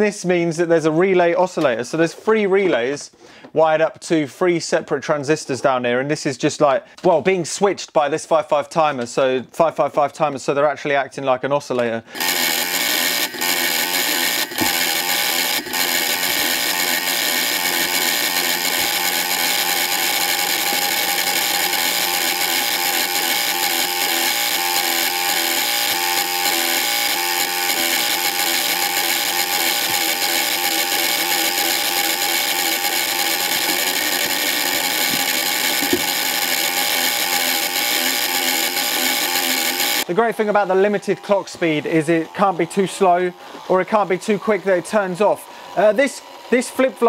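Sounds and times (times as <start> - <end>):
harsh electrical buzz: 12.2 - 47.0.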